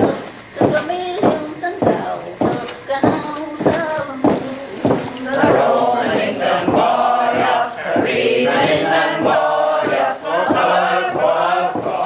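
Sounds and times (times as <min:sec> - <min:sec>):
group singing in unison: 0:04.4 - 0:12.0.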